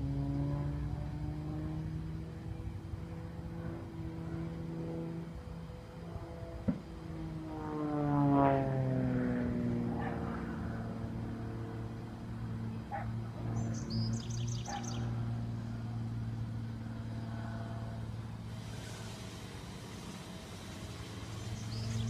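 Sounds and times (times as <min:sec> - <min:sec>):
propeller airplane flying past: 0:00.0 - 0:22.0
bird chirping: 0:13.6 - 0:15.2, 0:21.3 - 0:22.0.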